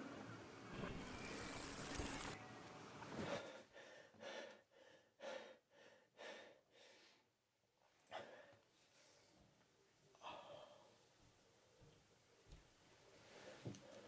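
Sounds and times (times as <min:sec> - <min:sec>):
man breathing: 0:03.2 - 0:07.4.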